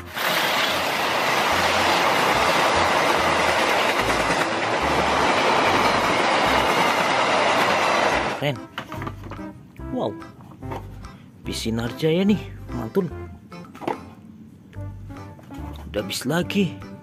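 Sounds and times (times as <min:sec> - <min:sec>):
steel wheels on rails: 0:00.0 - 0:08.4.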